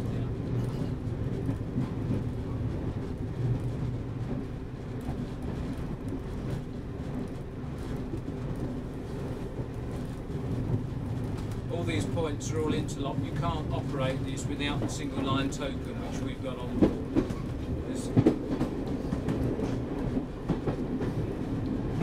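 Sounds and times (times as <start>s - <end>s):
diesel railcar drone: 0.0s - 22.0s.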